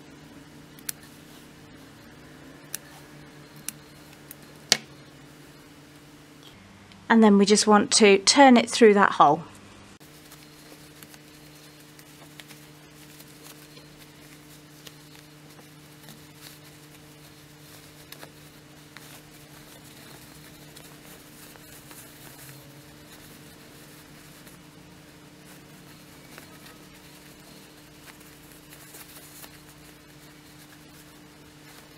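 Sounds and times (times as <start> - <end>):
steady low hum: 0.0 - 31.9
fabric rustling: 10.0 - 31.9.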